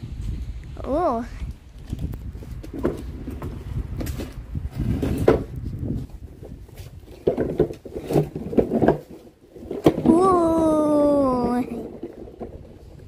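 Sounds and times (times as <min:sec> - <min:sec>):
knocks and clatter: 0:01.8 - 0:10.3
plastic toy wheels rumbling on tiles: 0:01.8 - 0:13.0.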